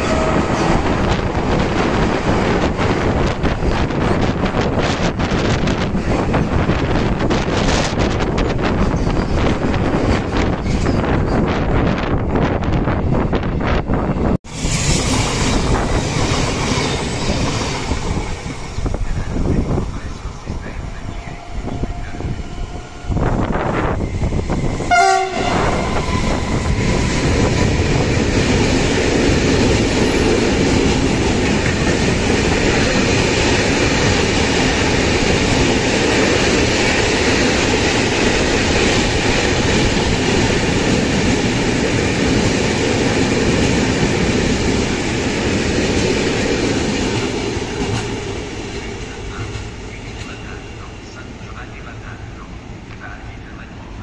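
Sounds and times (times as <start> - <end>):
train horn blast: 0.0 - 0.9, 24.9 - 26.8
freight train rumble and clatter: 0.0 - 54.0.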